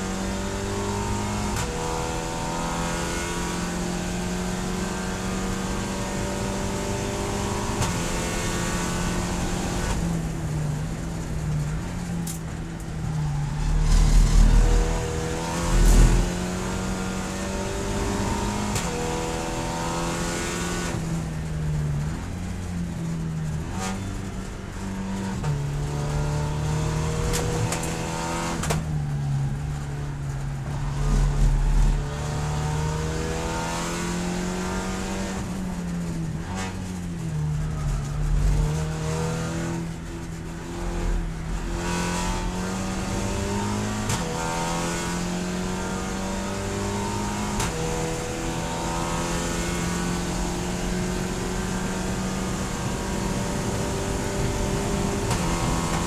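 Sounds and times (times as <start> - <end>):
road and wind noise: 0.0 - 56.0
race car engine revving: 13.6 - 21.0, 36.2 - 56.0.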